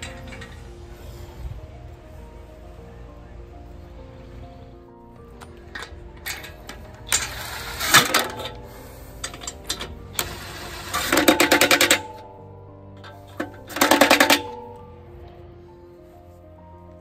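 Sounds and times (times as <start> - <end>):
faint background music: 0.0 - 17.0
impact wrench hammering: 5.4 - 12.4, 13.0 - 14.8.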